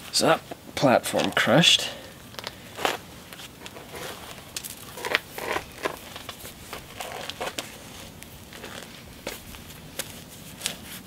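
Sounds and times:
gritty stone scrapes: 0:02.3 - 0:10.8.

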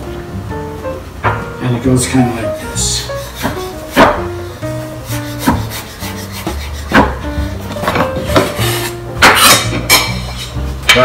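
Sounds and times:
blade scraping across board: 0:03.0 - 0:04.2, 0:05.0 - 0:09.7
knife knocking on cutting board: 0:06.5 - 0:07.2.

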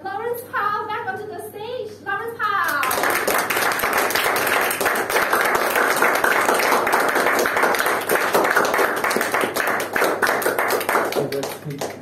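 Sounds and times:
audience applauding: 0:02.7 - 0:12.0.

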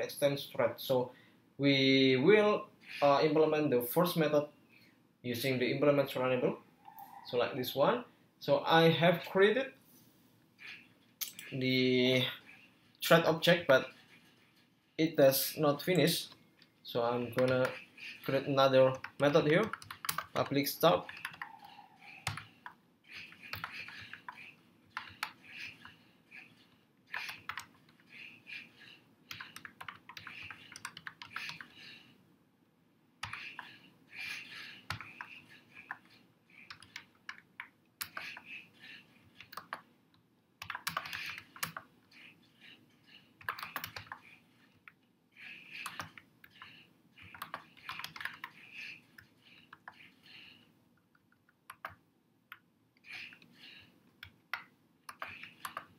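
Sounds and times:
computer keyboard typing: 0:17.3 - 0:32.1, 0:33.2 - 0:39.9, 0:40.6 - 0:50.6, 0:51.2 - 0:55.9.

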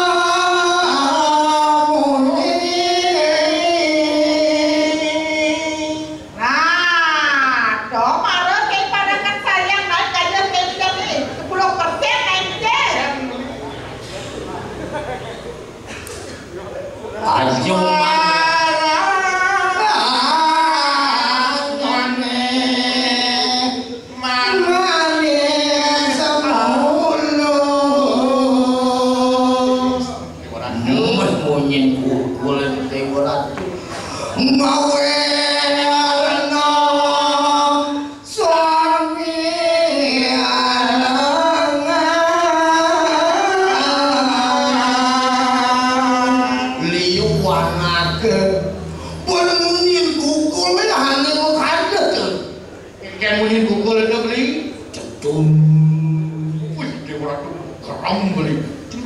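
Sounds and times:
person singing chant-like melody: 0:00.0 - 0:06.9, 0:17.3 - 0:32.8, 0:33.9 - 0:51.4, 0:55.0 - 0:57.0
person singing long held notes: 0:34.2 - 0:51.4, 0:55.2 - 0:57.0.

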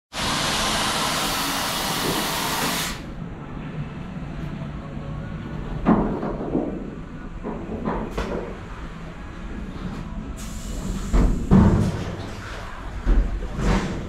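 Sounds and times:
loud steady hiss: 0:00.1 - 0:03.1, 0:10.4 - 0:11.6.

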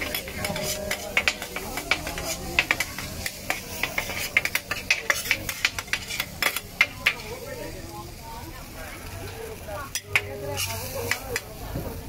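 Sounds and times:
metal spatulas scraping griddle: 0:00.0 - 0:07.5, 0:09.9 - 0:11.5
frying sizzle: 0:00.0 - 0:12.0.

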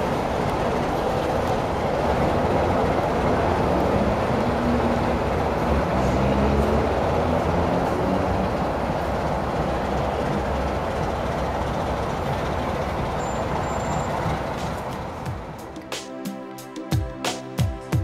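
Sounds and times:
diesel locomotive engine running: 0:00.0 - 0:15.8.

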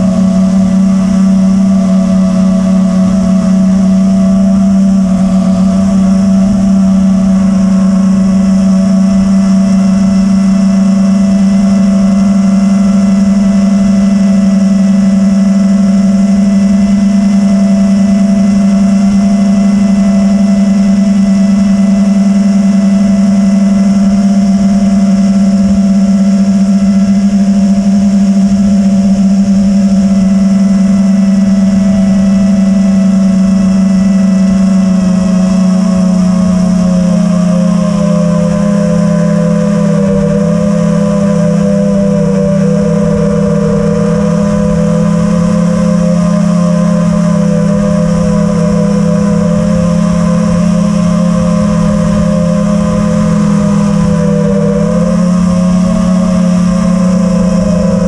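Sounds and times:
drone motors whining: 0:00.0 - 0:14.0, 0:29.5 - 0:58.0
wind noise on microphone: 0:00.0 - 0:58.0.

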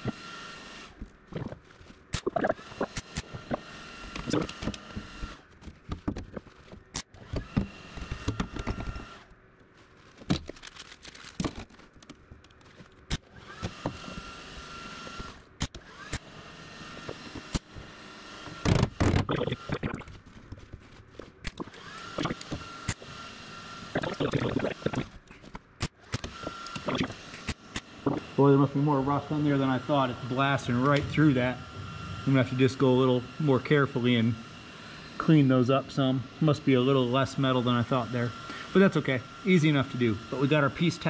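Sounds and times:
welder crackling: 0:00.8 - 0:23.2, 0:23.8 - 0:34.4.

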